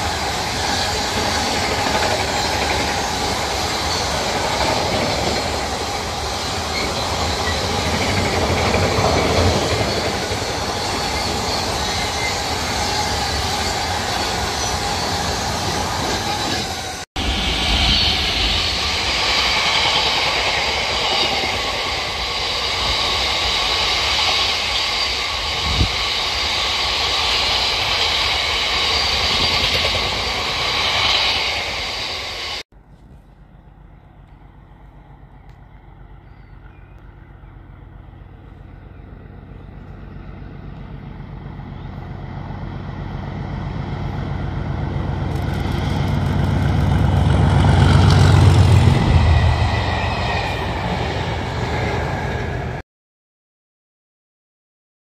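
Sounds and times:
freight wagons rumbling on rails: 0.0 - 52.8.

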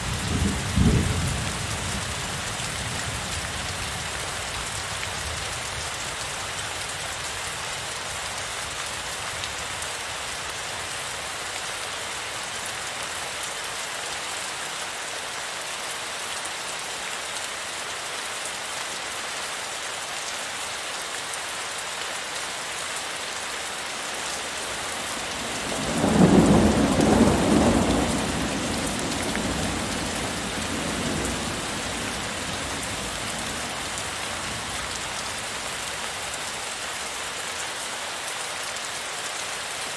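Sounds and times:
heavy rain hissing: 21.4 - 38.6.

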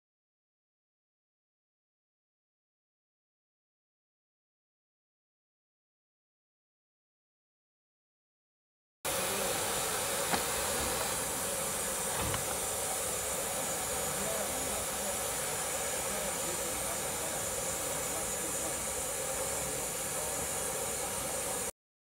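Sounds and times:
steam hissing: 9.1 - 21.7
faint knock: 12.1 - 12.6.

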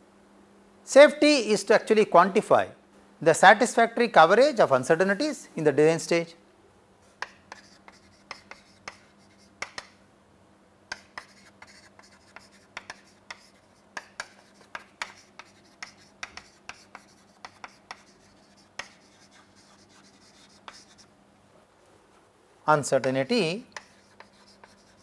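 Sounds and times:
chalk tapping and scratching: 7.1 - 10.0, 10.9 - 21.1, 23.0 - 25.0.

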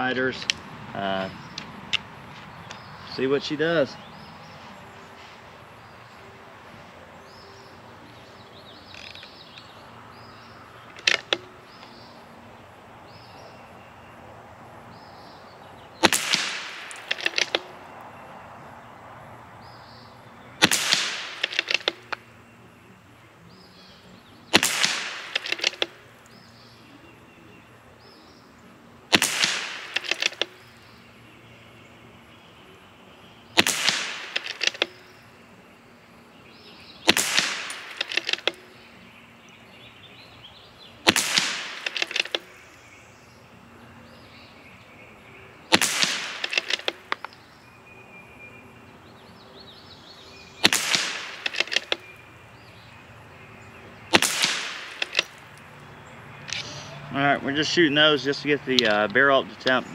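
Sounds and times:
rifle shots with echo: 16.0 - 17.7, 20.6 - 22.2, 24.5 - 26.0, 29.1 - 30.6, 33.6 - 35.0, 37.0 - 38.6, 41.0 - 42.5, 45.7 - 47.2, 50.6 - 52.0, 54.1 - 55.4.

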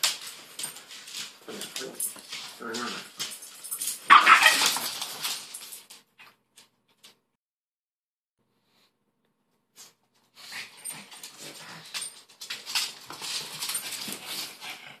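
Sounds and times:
dogs playing and scuffling: 0.0 - 7.2, 9.8 - 15.0.

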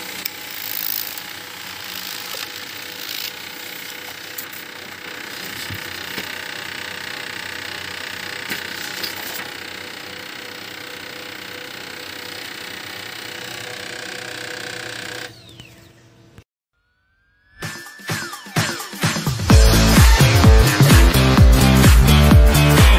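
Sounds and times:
laser printer humming and whirring: 0.0 - 15.7.

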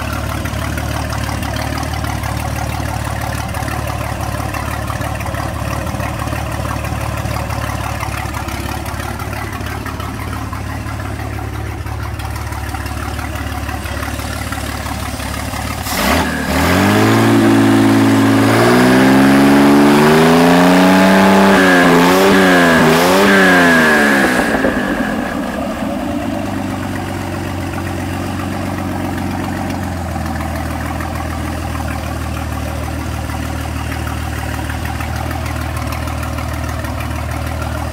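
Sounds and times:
boat engine idling and revving: 0.0 - 37.9.

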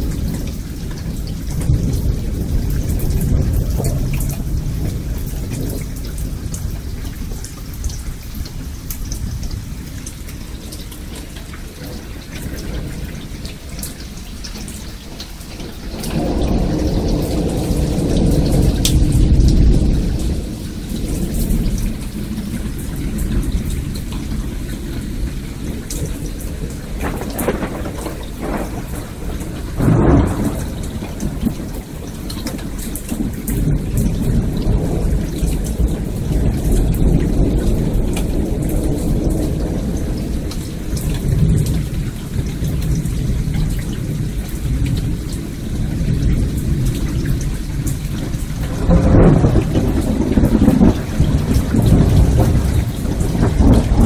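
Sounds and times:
steady rain: 0.0 - 54.0
thunder rumbling: 0.0 - 54.0.

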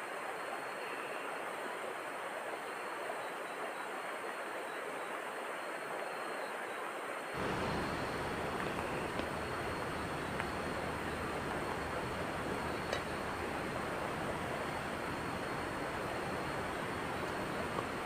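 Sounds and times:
river rushing: 7.4 - 18.0.

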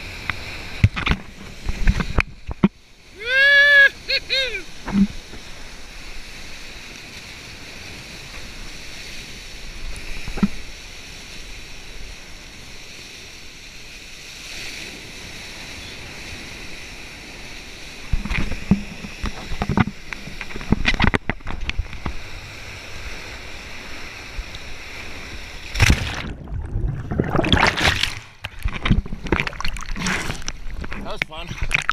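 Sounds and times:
water lapping and sloshing: 0.0 - 3.2, 4.6 - 31.9
water splashing: 24.9 - 31.9.

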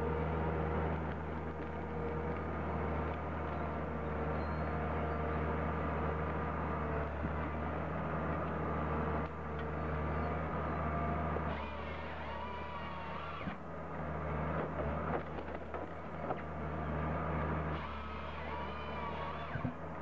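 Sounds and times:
heavy machinery engine humming: 0.0 - 20.0
faint whining tones: 1.0 - 7.6.

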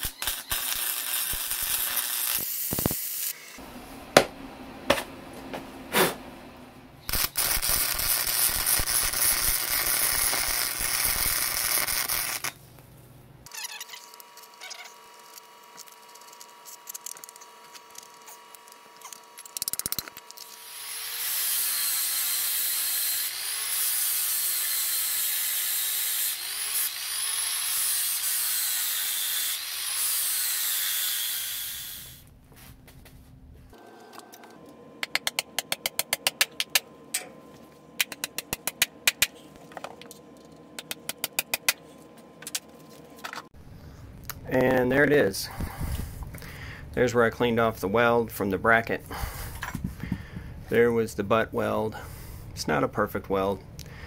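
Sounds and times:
welding crackle: 0.0 - 3.6, 7.0 - 12.6
angle grinder grinding steel: 13.6 - 32.2.

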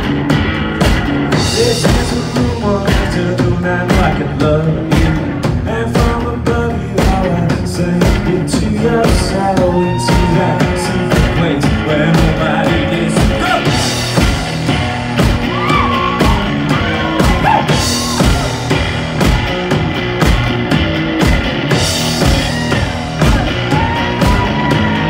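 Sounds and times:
drum kit beat: 0.0 - 25.0
electric guitar: 0.0 - 25.0
man singing: 1.3 - 14.3, 15.6 - 18.6.

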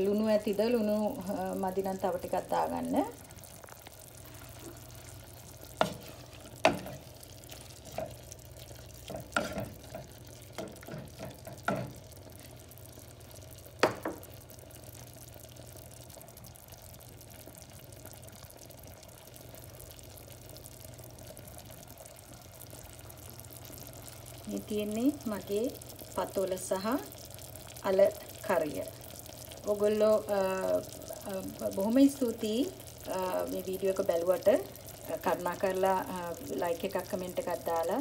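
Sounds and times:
utensil knocking and scraping pot: 5.8 - 7.1, 7.8 - 8.2, 9.0 - 12.0.

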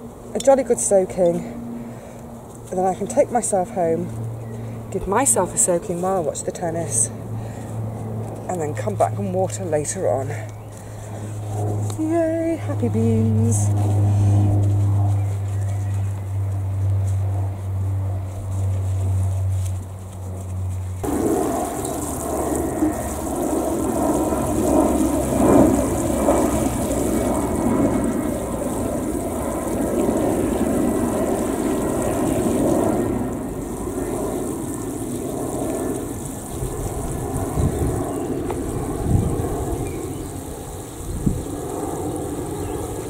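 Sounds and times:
water pouring from watering can: 21.0 - 43.0.

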